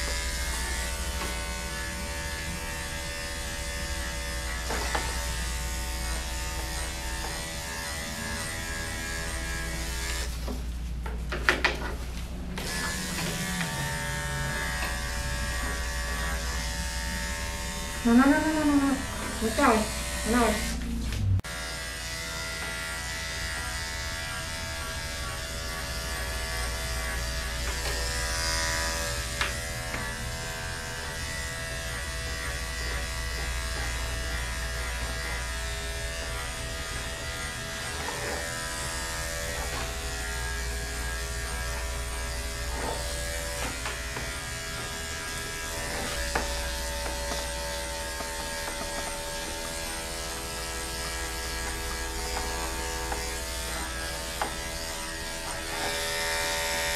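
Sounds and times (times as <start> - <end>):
electric dog clipper buzzing: 0.0 - 10.6, 12.4 - 56.9.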